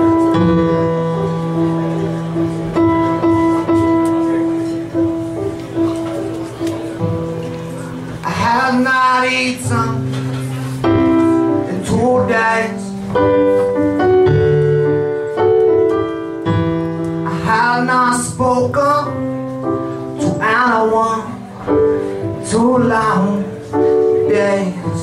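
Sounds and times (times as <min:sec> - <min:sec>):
keyboard chords: 0:00.0 - 0:25.0
person singing: 0:11.5 - 0:13.0.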